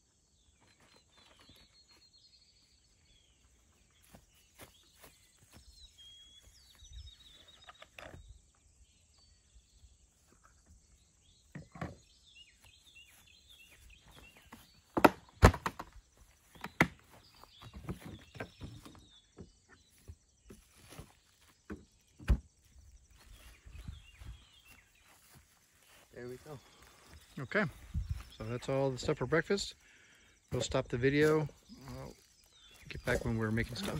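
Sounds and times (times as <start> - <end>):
birds chirping: 0.0 - 33.9
footsteps in grass: 0.6 - 7.6, 12.4 - 15.0, 15.9 - 29.8, 30.4 - 33.9.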